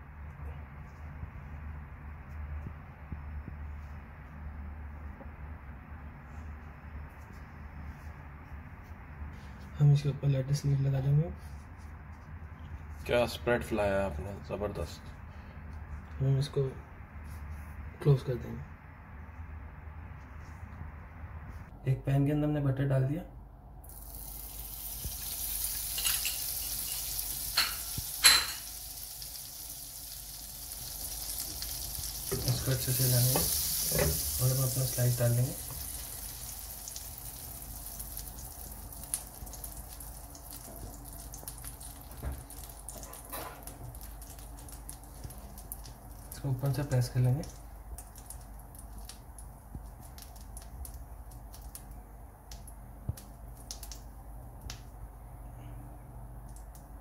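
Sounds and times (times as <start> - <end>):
low steady hum: 0.0 - 57.0
butter sizzling in a frying pan: 23.9 - 47.0.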